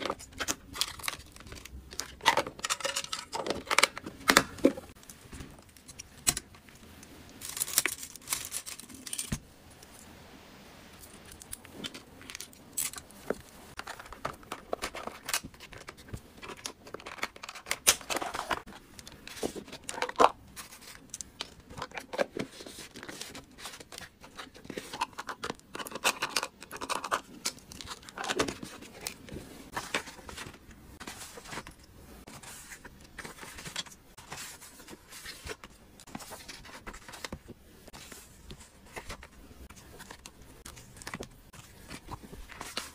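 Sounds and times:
plastic items clicking and tapping: 0.0s - 6.8s, 11.2s - 31.8s
plastic wrappers crinkling: 0.0s - 9.4s, 11.0s - 42.9s.

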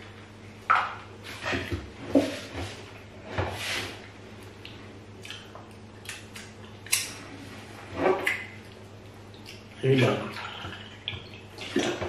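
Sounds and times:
wet eating smacks and clicks: 4.6s - 7.1s, 8.2s - 9.8s.

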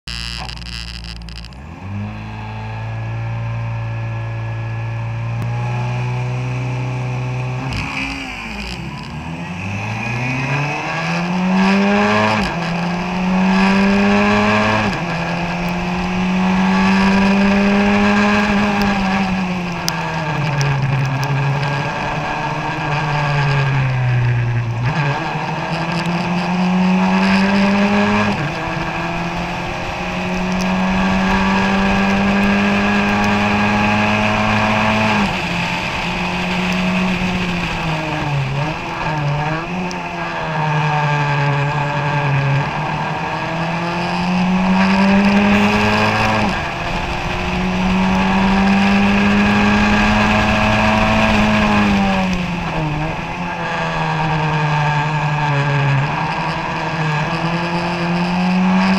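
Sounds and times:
race car engine revving: 0.0s - 58.9s.

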